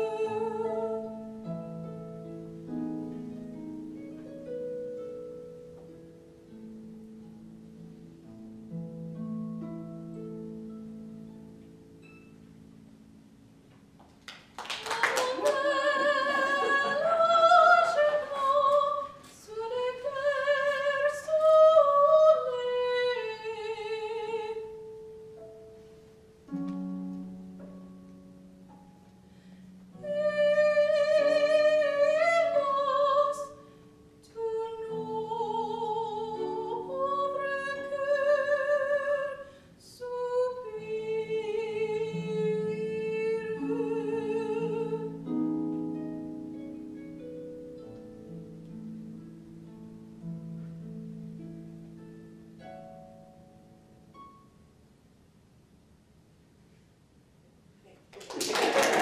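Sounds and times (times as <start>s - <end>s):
woman singing with vibrato: 0.0s - 1.2s, 14.8s - 24.8s, 30.0s - 33.6s, 34.2s - 45.3s
harp playing: 0.0s - 14.0s, 15.0s - 54.9s.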